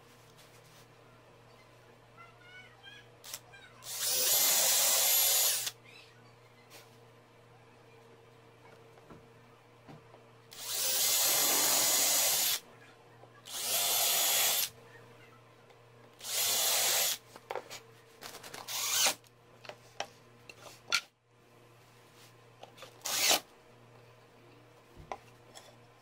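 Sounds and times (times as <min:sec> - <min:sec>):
cordless drill driving screws: 0:03.3 - 0:05.7, 0:10.5 - 0:12.6, 0:13.5 - 0:14.7, 0:16.2 - 0:17.2, 0:18.7 - 0:19.2, 0:23.0 - 0:23.5.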